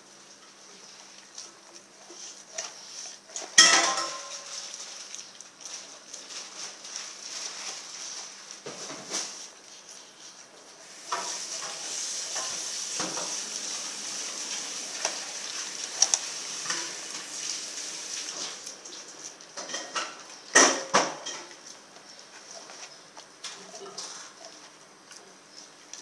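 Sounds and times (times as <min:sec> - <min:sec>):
dog crunching bones: 0:01.0 - 0:08.7, 0:11.1 - 0:17.2, 0:21.1 - 0:26.0
teeth scraping frozen meat: 0:04.4 - 0:17.3.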